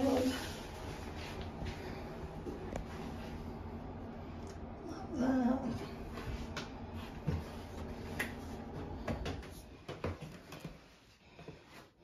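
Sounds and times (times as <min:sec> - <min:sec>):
faint low rumble: 0:00.0 - 0:09.1.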